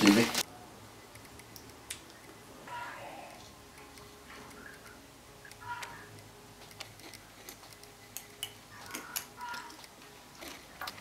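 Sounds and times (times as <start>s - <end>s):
teaspoon clicking on fruit: 5.5s - 11.0s.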